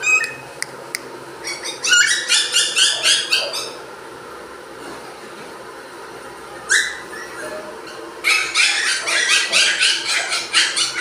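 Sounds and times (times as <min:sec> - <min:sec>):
puppies yelping and yipping: 0:00.0 - 0:00.4, 0:01.4 - 0:03.8, 0:06.7 - 0:11.0.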